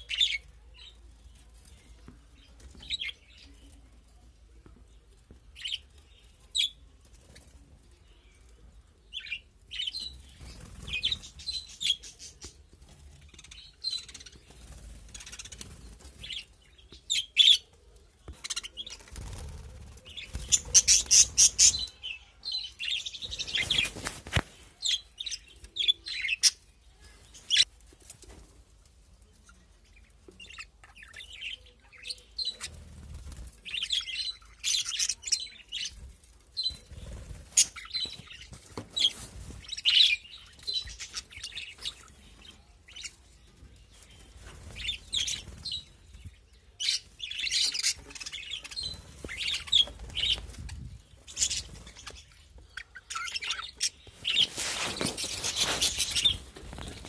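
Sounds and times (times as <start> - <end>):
budgerigars chirping and chattering: 0.0 - 3.8, 18.3 - 27.7, 29.4 - 57.0.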